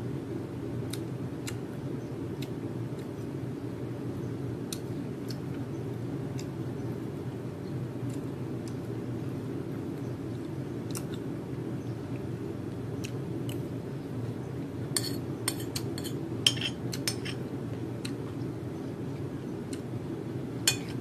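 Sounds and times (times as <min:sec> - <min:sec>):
steady low hum: 0:00.0 - 0:21.0
cutlery clinking on a plate: 0:15.0 - 0:17.4.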